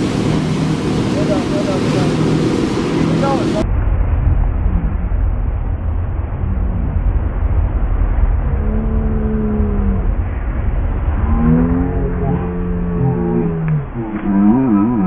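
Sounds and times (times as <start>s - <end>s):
motorboat engine rumble: 0.0s - 15.0s
rushing wake water: 0.0s - 15.0s
wind buffeting microphone: 0.0s - 15.0s.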